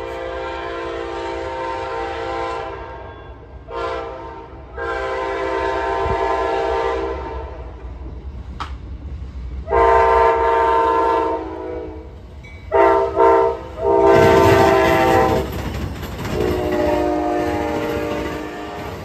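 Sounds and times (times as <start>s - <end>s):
train horn blasts: 0.0s - 7.8s, 9.6s - 15.6s, 16.4s - 19.0s
train wheels clattering: 12.1s - 19.0s.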